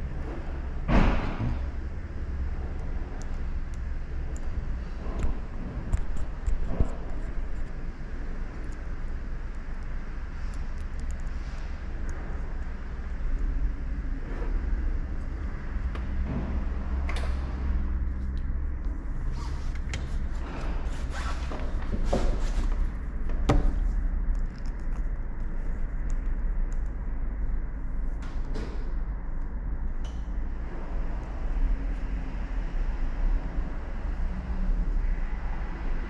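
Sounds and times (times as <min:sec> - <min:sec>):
steady low rumble: 0:00.0 - 0:36.0.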